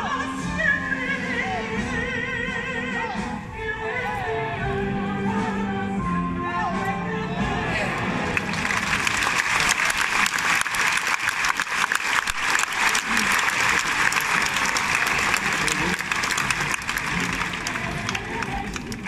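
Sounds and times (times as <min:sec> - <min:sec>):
crowd applauding: 0:07.9 - 0:19.0.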